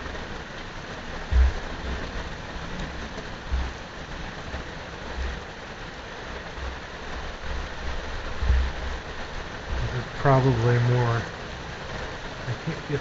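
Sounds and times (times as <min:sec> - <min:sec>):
steady rain: 0:00.0 - 0:13.0
brief low thumps: 0:01.3 - 0:03.8, 0:08.4 - 0:08.8.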